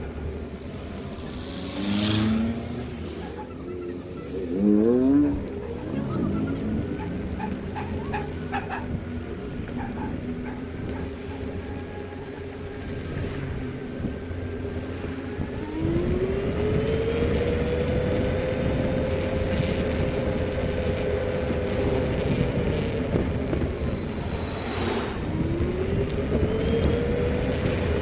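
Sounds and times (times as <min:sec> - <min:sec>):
road and wind noise: 0:00.0 - 0:28.0
vehicle engine: 0:00.0 - 0:28.0.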